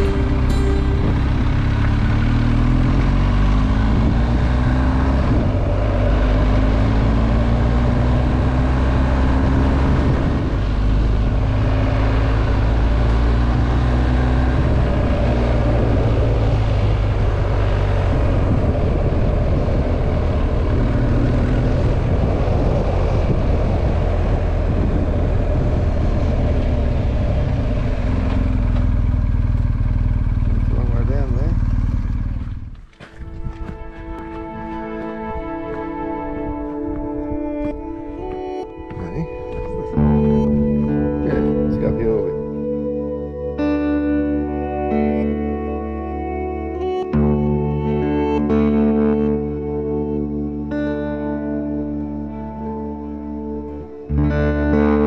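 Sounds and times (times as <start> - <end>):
wind rush: 0.0 - 29.3, 32.3 - 43.3
motorcycle engine running: 0.0 - 34.1.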